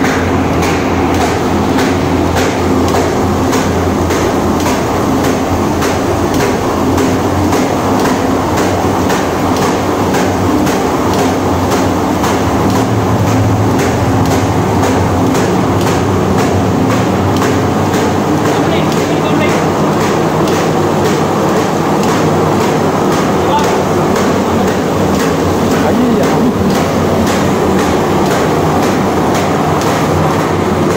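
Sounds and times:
machine clattering: 0.0s - 30.9s
rhythmic sharp knock: 0.0s - 30.9s.

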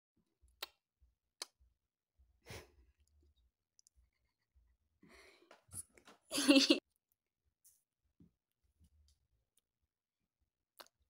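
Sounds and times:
soft breath: 5.0s - 5.9s.

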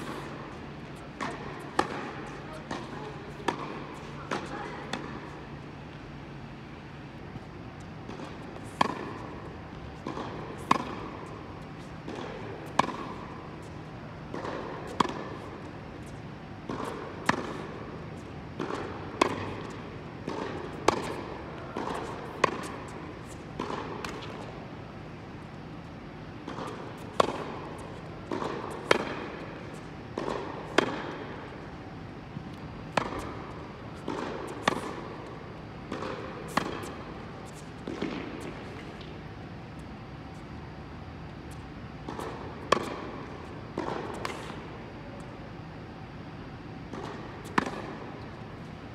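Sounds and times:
ball bouncing on hard court: 0.0s - 5.3s, 7.9s - 17.7s, 18.6s - 24.6s, 26.4s - 31.7s, 32.4s - 39.2s, 41.5s - 44.7s, 46.9s - 48.1s
rackets striking tennis ball: 0.0s - 25.4s, 26.2s - 40.6s, 41.2s - 45.3s, 46.6s - 48.7s.

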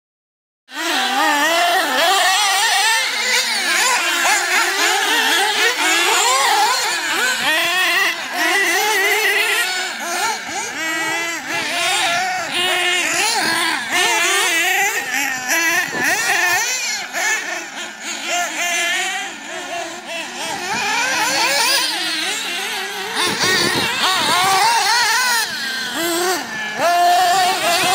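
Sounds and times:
small engines revving high-pitched: 0.7s - 27.9s.

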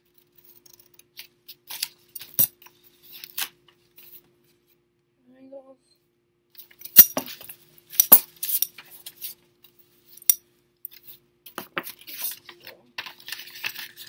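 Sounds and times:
paper rustling: 11.0s - 14.0s.

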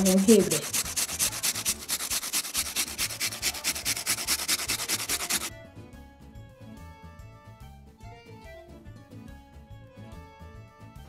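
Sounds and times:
ginger rasping on metal grater: 0.0s - 5.5s
soft background music: 0.0s - 11.0s.

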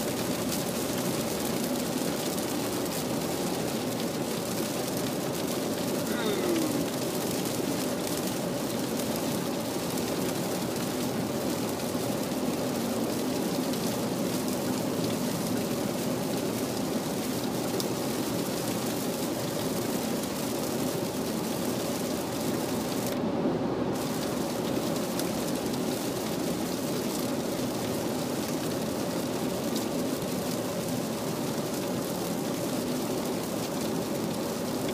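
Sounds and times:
heavy rain on car roof: 0.0s - 34.9s.

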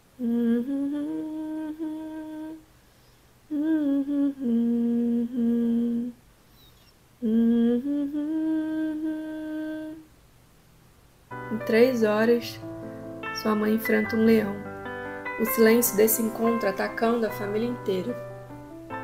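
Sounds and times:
person humming a slow melody: 0.0s - 2.6s, 3.5s - 10.1s.

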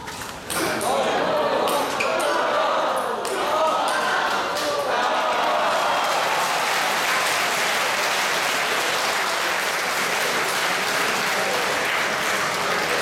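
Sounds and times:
crowd applauding: 3.4s - 13.0s.

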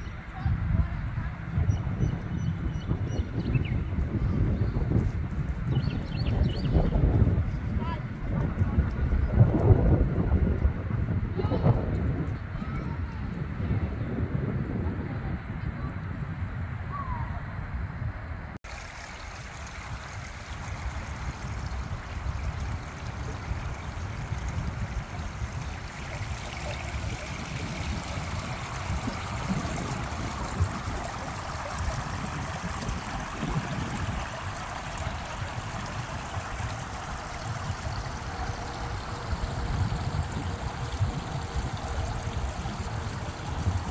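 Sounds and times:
water trickling into drain: 18.6s - 43.9s.

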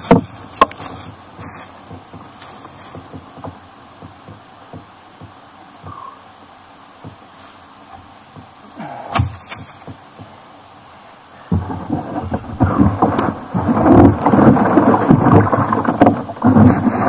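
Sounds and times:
kayak scraping over leaves: 0.0s - 6.1s, 7.0s - 17.0s
sharp knocks: 0.0s - 6.1s, 9.1s - 10.4s, 11.5s - 17.0s.

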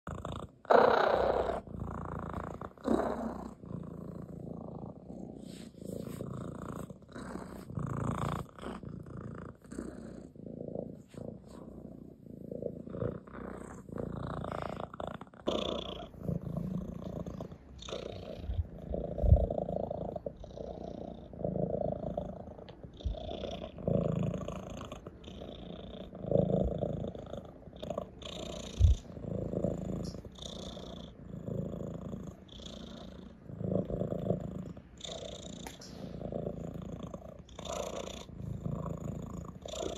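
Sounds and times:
cat purring: 0.0s - 39.9s
rustling of fur and fabric: 2.1s - 10.1s, 10.8s - 19.6s.

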